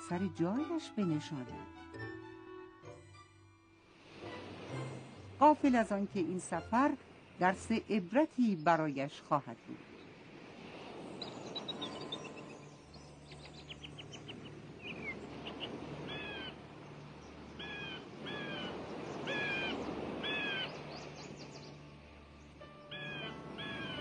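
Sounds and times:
seagulls crying: 15.6 - 16.6, 17.6 - 20.9, 22.8 - 24.0.

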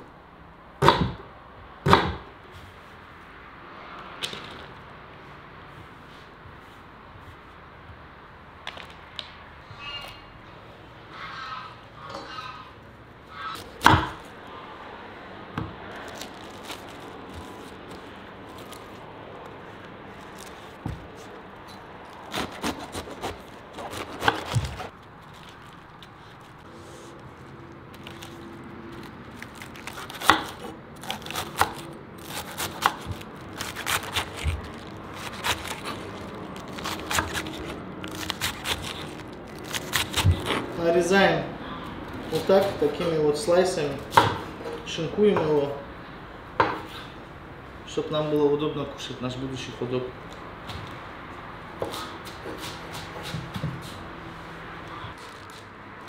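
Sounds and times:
vegetables crunching: 15.8 - 26.6, 27.4 - 40.8
knife chopping on wooden board: 22.3 - 24.9.

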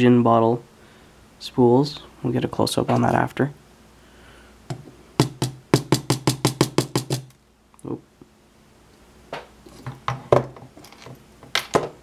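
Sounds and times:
metal cylinder knocking on bench: 4.7 - 7.3.

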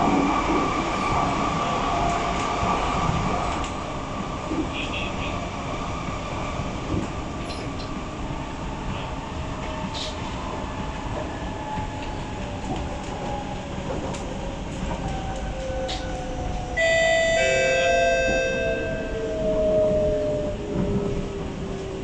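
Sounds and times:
train wheels rumbling on rails: 0.0 - 22.0
loud falling whine: 16.8 - 20.8.

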